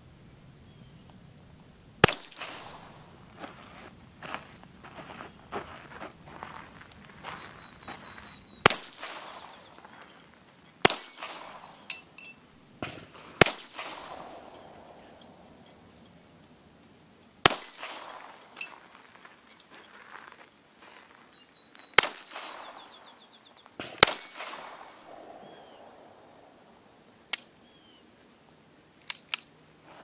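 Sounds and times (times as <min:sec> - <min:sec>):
pistol shots with echo: 0:02.0 - 0:03.1, 0:08.6 - 0:09.8, 0:10.8 - 0:11.9, 0:12.8 - 0:15.6, 0:17.4 - 0:18.6, 0:22.0 - 0:23.0, 0:23.8 - 0:26.5
steel targets clanging: 0:10.6 - 0:16.2, 0:17.5 - 0:19.9.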